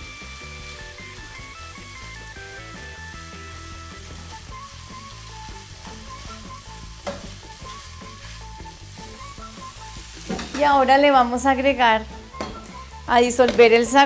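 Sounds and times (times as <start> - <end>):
food sizzling in a wok: 0.0 - 14.0
spoon scraping a pan: 10.2 - 10.7.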